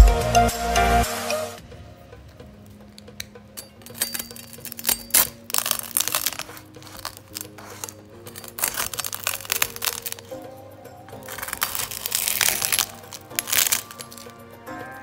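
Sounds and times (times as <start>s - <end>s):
soft background music: 0.0s - 15.0s
crackling and crinkling clicks: 2.2s - 10.5s, 11.1s - 14.5s.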